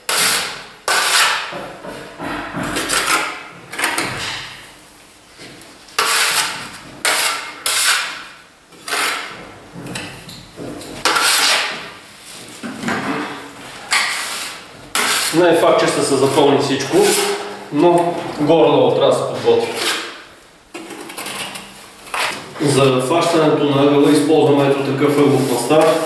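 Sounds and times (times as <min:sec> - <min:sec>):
trowel scraping on metal: 0:06.0 - 0:08.2, 0:08.8 - 0:09.4, 0:11.0 - 0:11.8, 0:13.9 - 0:15.4, 0:16.3 - 0:17.5, 0:22.1 - 0:22.4.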